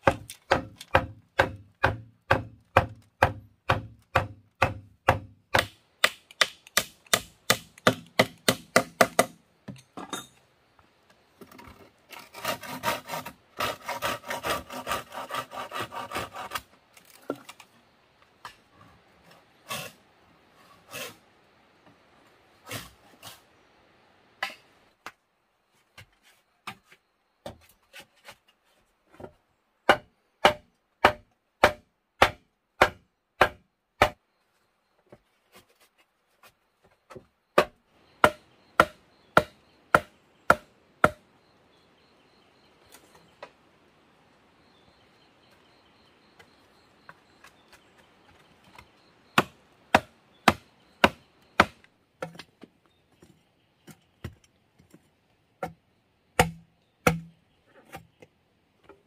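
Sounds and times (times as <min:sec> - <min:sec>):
log knocking on bamboo poles: 0:00.0 - 0:09.8, 0:29.1 - 0:34.2, 0:56.4 - 0:59.0.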